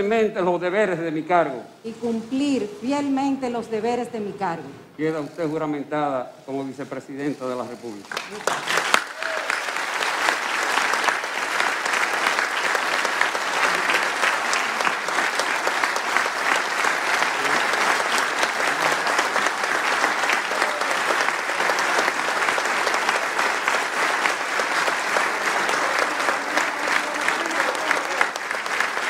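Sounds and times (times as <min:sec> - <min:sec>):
large crowd applauding: 0:07.9 - 0:29.0.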